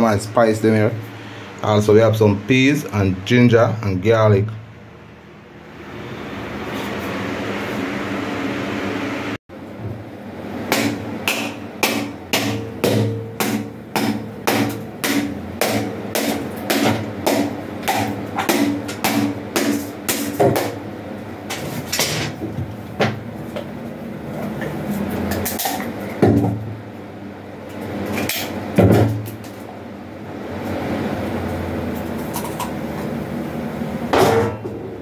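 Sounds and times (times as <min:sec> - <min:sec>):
machete striking coconut: 0:10.7 - 0:20.8.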